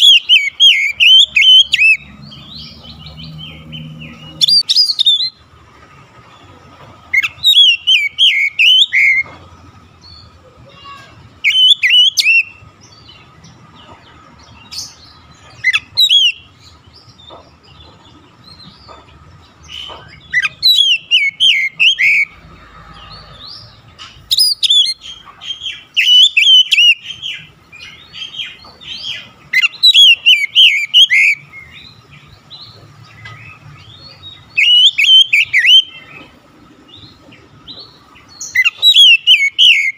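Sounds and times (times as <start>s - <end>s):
bird singing whistled phrases: 0.0s - 2.0s, 4.3s - 5.4s, 7.2s - 9.2s, 11.4s - 12.6s, 15.7s - 16.5s, 20.3s - 22.3s, 24.3s - 25.0s, 26.0s - 27.1s, 29.6s - 31.4s, 34.5s - 36.1s, 38.5s - 39.9s.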